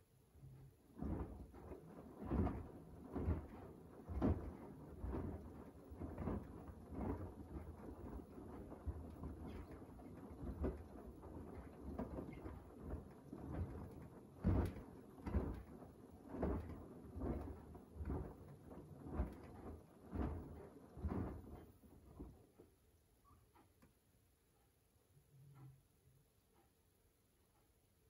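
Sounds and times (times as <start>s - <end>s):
washing machine drum sloshing: 0.9s - 22.5s.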